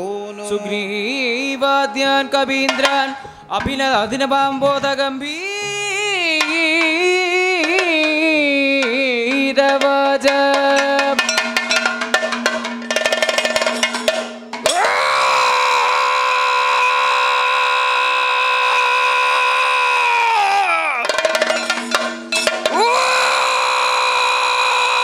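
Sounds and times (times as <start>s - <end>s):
person singing: 0.0s - 11.3s, 14.7s - 21.1s, 22.7s - 25.0s
metallic clangs: 2.2s - 5.0s, 5.6s - 15.0s, 21.0s - 22.9s
drum strokes: 2.4s - 15.8s, 20.5s - 24.5s.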